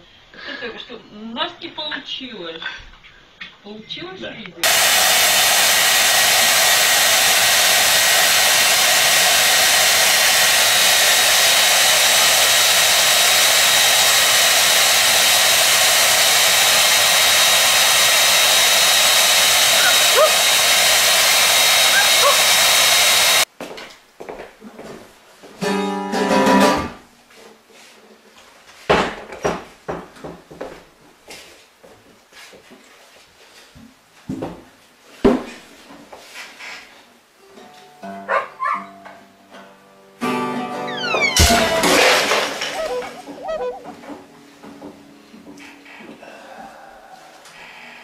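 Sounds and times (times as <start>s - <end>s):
hair dryer running: 4.6s - 23.5s, 41.1s - 44.0s
acoustic guitar strum: 25.6s - 27.0s, 39.5s - 44.2s.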